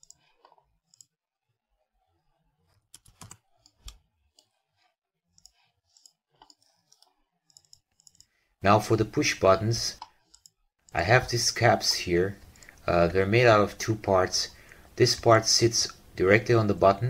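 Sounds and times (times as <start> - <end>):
computer mouse clicks: 0.0 - 1.1, 2.9 - 4.5, 5.4 - 8.4, 9.9 - 11.0, 12.4 - 12.9.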